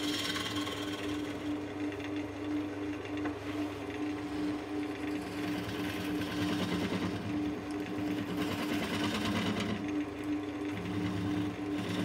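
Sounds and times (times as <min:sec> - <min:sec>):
turning tool scraping wood: 0:00.0 - 0:01.6, 0:03.1 - 0:10.0, 0:10.7 - 0:12.0
wood lathe motor hum: 0:00.0 - 0:12.0.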